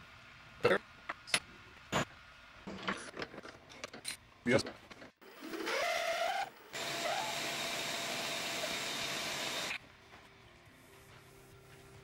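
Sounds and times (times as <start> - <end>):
milling machine spindle whining: 5.5 - 9.8.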